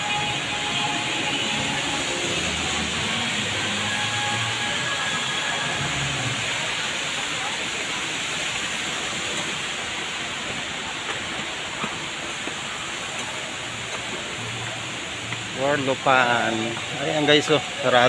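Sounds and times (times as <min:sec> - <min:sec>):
background music: 0:00.0 - 0:06.7
hall background hiss: 0:00.0 - 0:18.0
footsteps on stone stairs: 0:10.3 - 0:15.5.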